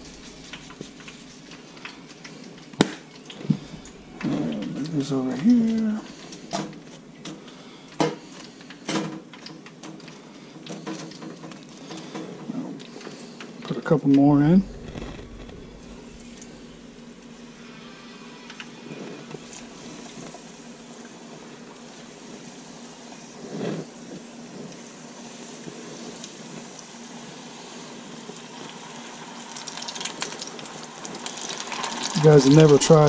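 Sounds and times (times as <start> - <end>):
food deep-frying in oil: 14.6 - 33.0.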